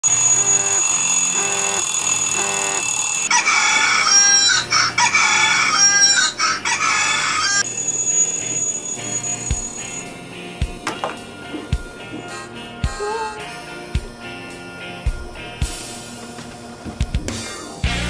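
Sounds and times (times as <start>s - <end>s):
phone alarm electronic tune: 0.0s - 5.5s
rooster crowing alarm tone: 0.0s - 6.2s.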